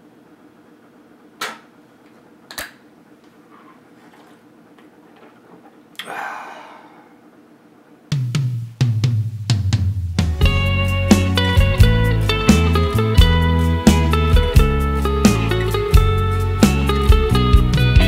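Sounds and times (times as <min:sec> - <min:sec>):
loud music with drum kit: 0:08.1 - 0:18.0.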